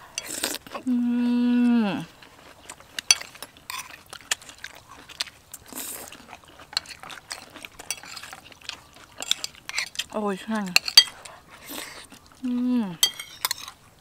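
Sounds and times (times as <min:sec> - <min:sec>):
spoons clinking on ceramic bowls: 0:13.0 - 0:13.7.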